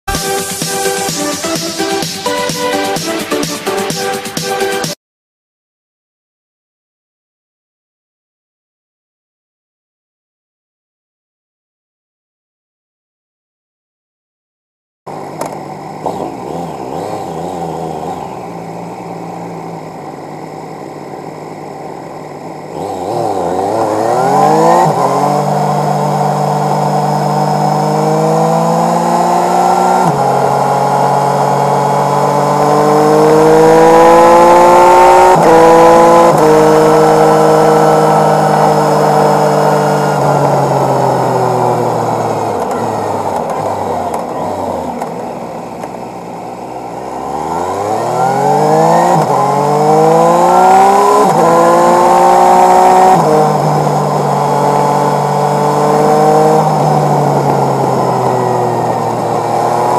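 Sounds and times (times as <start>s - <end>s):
motorcycle engine accelerating: 15.1s - 59.9s.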